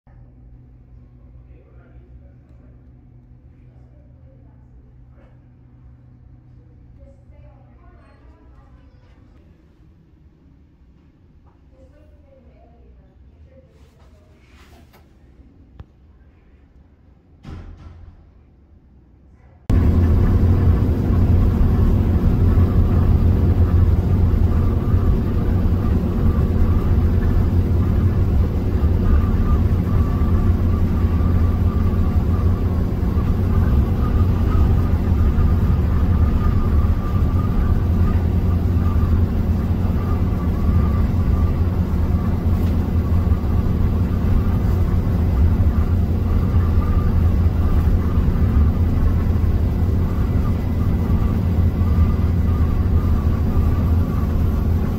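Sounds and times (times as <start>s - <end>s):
vehicle engine and road drone: 19.6s - 54.9s
faint wavering whine: 19.7s - 54.9s.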